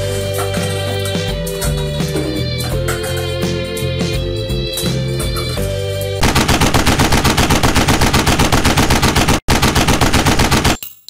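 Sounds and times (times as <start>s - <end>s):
rapid machine-gun fire: 6.2s - 10.8s.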